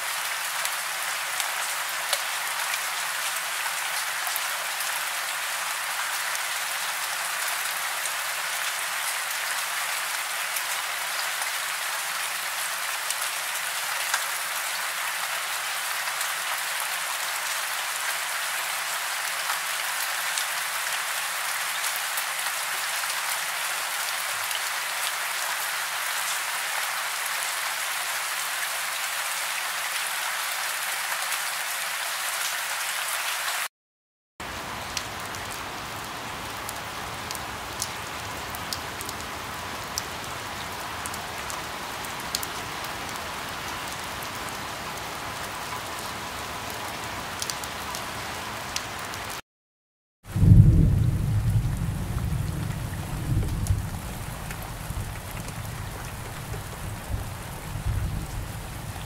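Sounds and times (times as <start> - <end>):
steady rain falling: 0.0 - 33.7, 34.4 - 49.4, 50.3 - 59.0.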